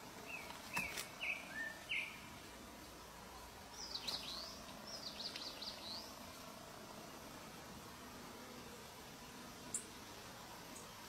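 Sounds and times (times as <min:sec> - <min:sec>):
thrushes chirping: 0:00.3 - 0:02.4, 0:03.7 - 0:06.4.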